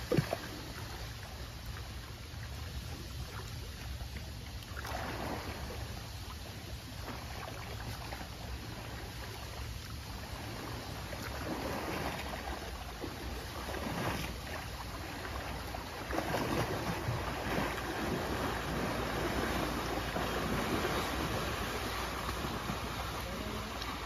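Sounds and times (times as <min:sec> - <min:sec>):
elephants splashing through water: 0:13.3 - 0:24.0.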